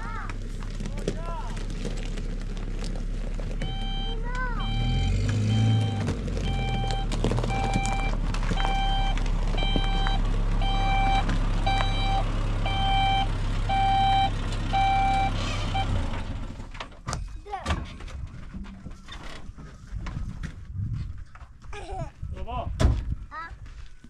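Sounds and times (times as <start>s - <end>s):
low engine hum: 0.0s - 17.0s
truck reverse alarm beeping: 3.6s - 16.1s.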